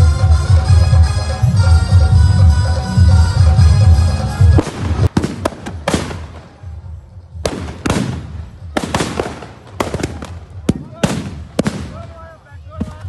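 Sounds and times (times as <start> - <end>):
firecrackers cracking: 4.5 - 13.0.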